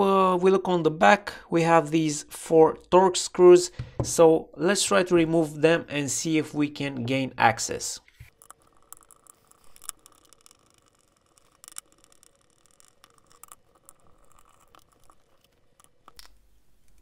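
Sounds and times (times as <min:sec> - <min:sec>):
screwdriver scraping: 0:08.2 - 0:16.3.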